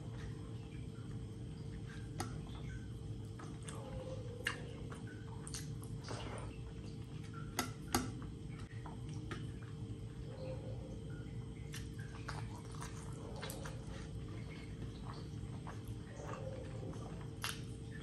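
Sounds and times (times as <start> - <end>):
steady low hum: 0.0 - 18.0
mouth clicks while chewing: 4.4 - 6.0, 11.5 - 14.0, 14.9 - 17.9.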